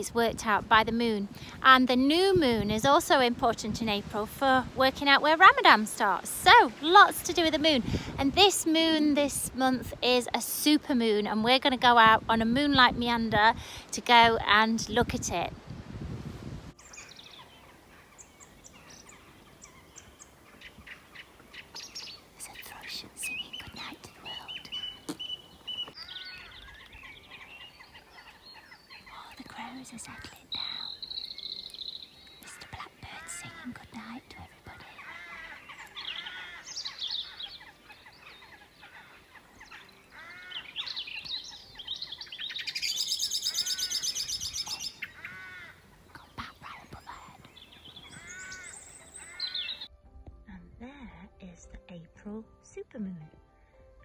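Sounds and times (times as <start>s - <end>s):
birds chirping and trilling: 16.8s - 49.9s
songbirds singing: 16.8s - 49.9s.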